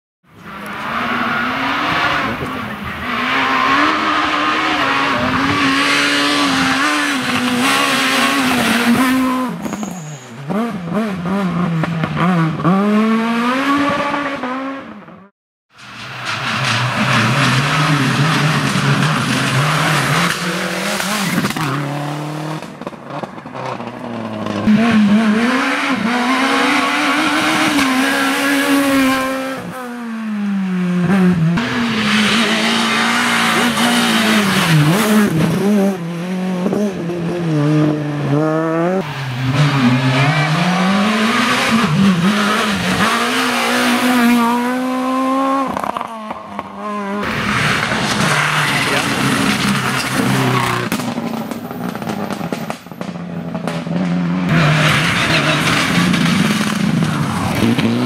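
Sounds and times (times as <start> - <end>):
rally car engines revving: 0.3 - 58.0
high-revving car engine passing: 23.5 - 52.5.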